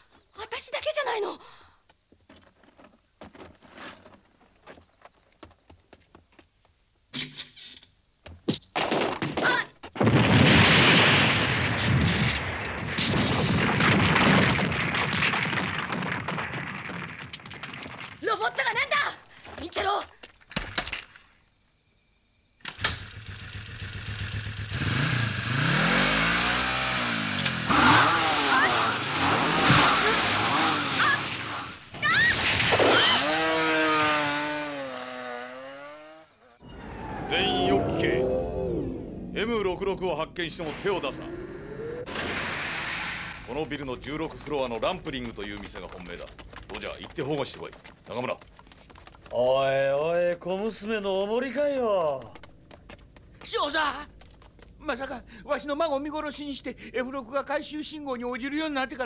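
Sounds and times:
debris crashing: 8.8s - 19.7s, 27.5s - 34.5s, 42.1s - 49.4s
explosion blast: 10.0s - 18.2s, 36.6s - 44.1s
rear wheel spinning in dirt: 11.8s - 19.8s, 22.7s - 32.0s, 40.7s - 55.2s
motorcycle engine revving: 22.8s - 31.8s, 33.1s - 39.7s, 40.6s - 43.1s.

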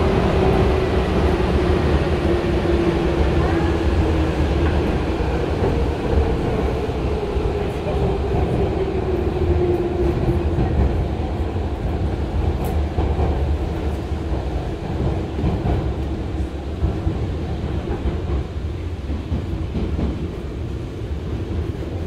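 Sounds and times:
train wheels rumbling: 0.0s - 22.0s.

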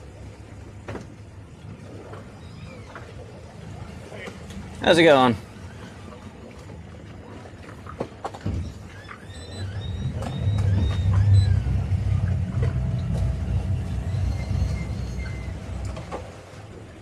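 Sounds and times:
motorboat engine rumbling: 0.0s - 17.0s.

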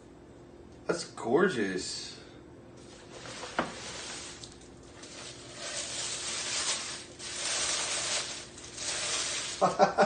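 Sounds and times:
paper rustling and crinkling: 2.8s - 9.9s.

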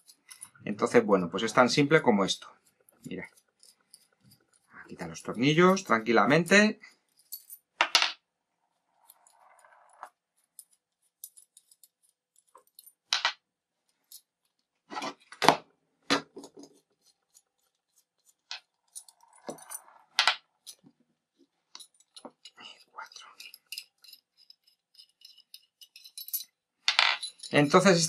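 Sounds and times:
metallic clicks and clinks: 0.0s - 0.6s, 7.1s - 7.6s, 9.0s - 13.3s, 18.1s - 20.9s, 21.7s - 28.0s.

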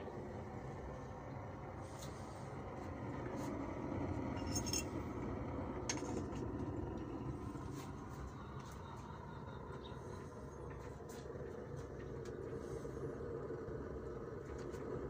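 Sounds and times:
pellet burner rushing: 0.0s - 8.6s
light metallic clinks: 4.4s - 5.0s.

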